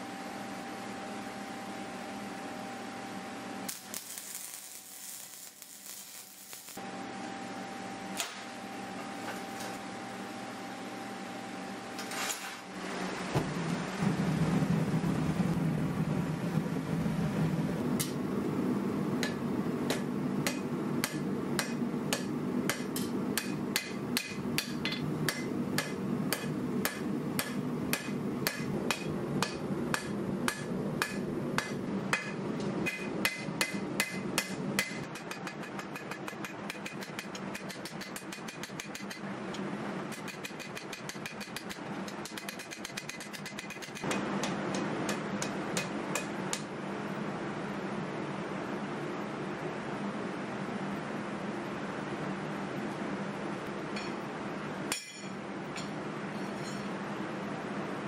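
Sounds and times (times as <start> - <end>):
hammer striking steel on anvil: 19.2 - 39.3, 40.1 - 46.7, 54.0 - 54.2, 54.9 - 56.9.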